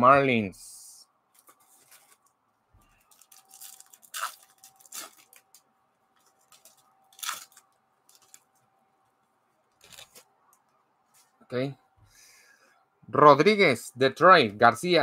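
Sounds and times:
card wrapper tearing and crinkling: 3.0s - 5.6s, 6.4s - 8.5s, 9.8s - 10.3s.

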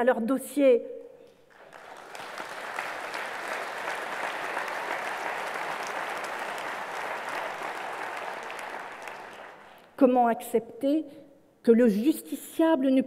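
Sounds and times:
audience applauding: 1.5s - 9.9s.

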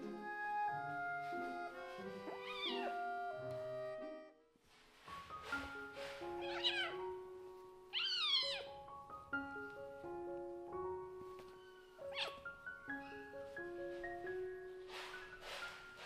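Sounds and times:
light background music: 0.0s - 16.0s
kittens mewing: 2.3s - 3.1s, 6.4s - 7.0s, 8.0s - 8.8s, 12.0s - 12.5s.

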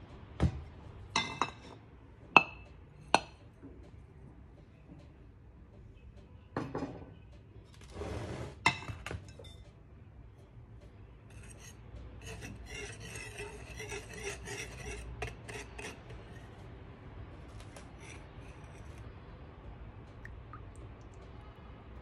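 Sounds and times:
wire whisk stirring flour: 11.3s - 16.6s, 17.8s - 19.0s.

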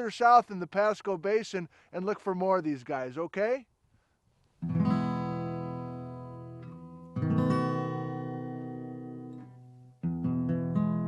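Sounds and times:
strummed acoustic guitar chords: 4.6s - 11.0s.

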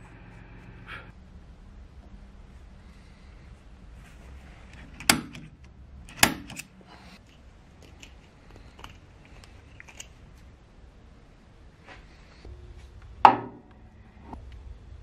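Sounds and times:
faint handling clicks: 4.6s - 10.4s
center punch striking metal: 5.0s - 6.6s, 13.2s - 13.7s.

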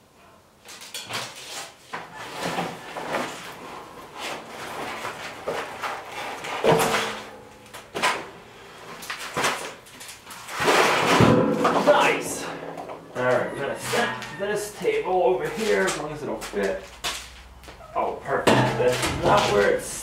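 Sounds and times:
metal table clanking: 11.0s - 14.4s, 18.4s - 19.6s.

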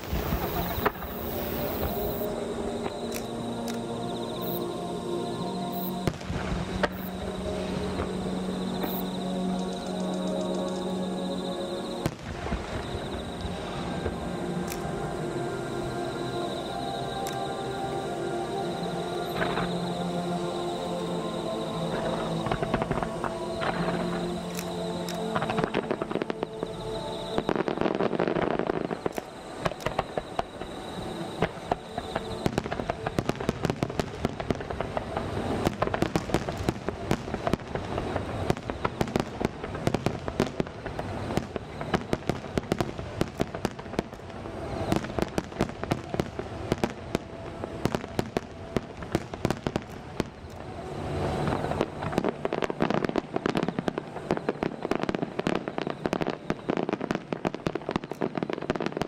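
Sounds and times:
distant fireworks bursts and bangs: 0.0s - 2.3s, 6.0s - 7.2s, 27.4s - 59.0s.

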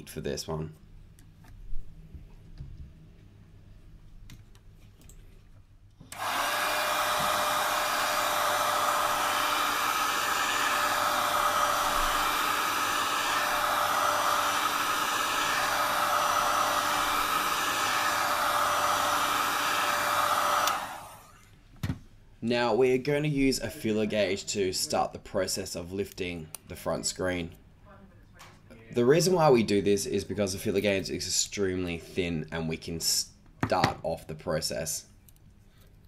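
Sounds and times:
heat gun blowing air: 6.1s - 21.4s.

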